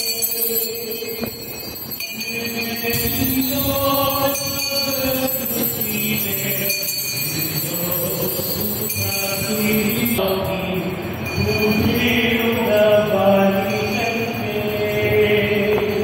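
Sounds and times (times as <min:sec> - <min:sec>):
group singing a slow hymn: 0:02.8 - 0:06.8, 0:07.4 - 0:16.0.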